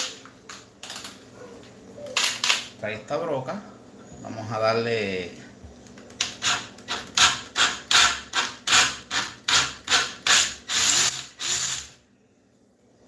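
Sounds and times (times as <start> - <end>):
cordless drill boring metal: 6.3 - 11.9.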